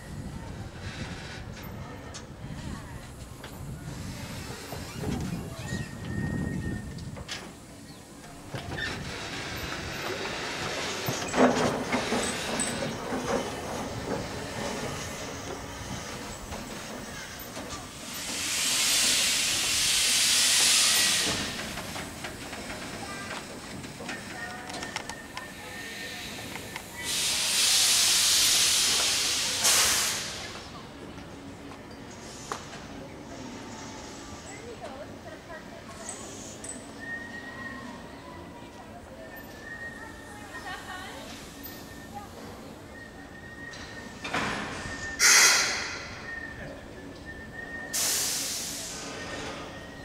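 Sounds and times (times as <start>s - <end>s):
steam locomotive hissing steam: 0.0s - 50.0s
loud hisses of released pressure: 14.4s - 22.0s, 25.6s - 30.7s, 44.1s - 46.5s, 47.8s - 49.8s.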